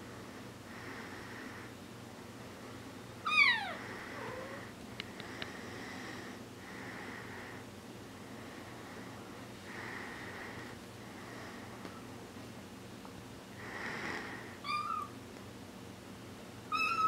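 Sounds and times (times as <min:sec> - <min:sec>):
kitten meowing: 0:03.2 - 0:04.6, 0:14.6 - 0:15.1, 0:16.7 - 0:17.0.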